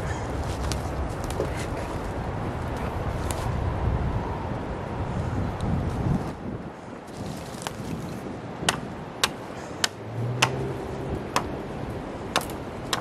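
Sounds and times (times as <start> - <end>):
wind: 0.0 - 13.0
hand tool striking wood: 8.7 - 10.6, 11.3 - 11.5, 12.3 - 13.0.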